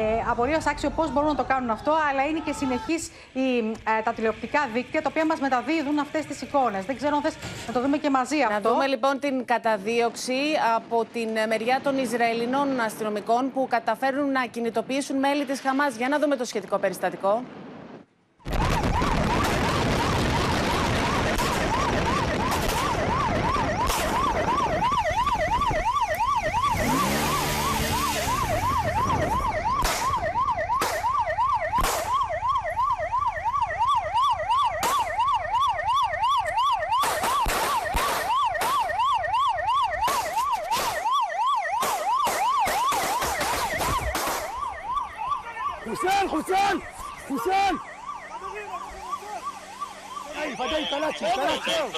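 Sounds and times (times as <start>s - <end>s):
wind and road rush: 0.0s - 51.9s
pistol fire cracks: 18.5s - 24.3s, 29.8s - 30.2s, 31.8s - 32.3s, 37.0s - 39.0s, 40.0s - 41.2s, 41.8s - 44.6s
police siren yelping: 18.5s - 51.9s.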